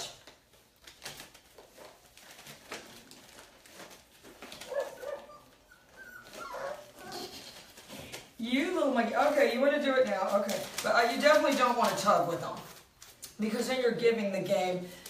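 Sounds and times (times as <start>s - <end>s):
puppies crying: 4.6s - 7.7s.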